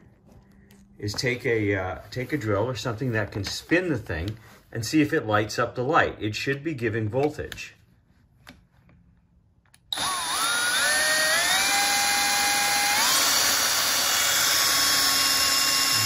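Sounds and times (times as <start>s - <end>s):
power drill whine: 9.9s - 16.0s.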